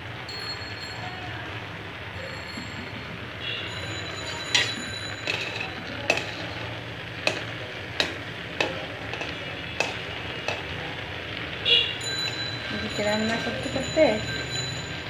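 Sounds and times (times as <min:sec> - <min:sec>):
water boiling: 0:00.0 - 0:15.0
metal spoon clinking on pot: 0:04.0 - 0:10.8, 0:12.1 - 0:14.5.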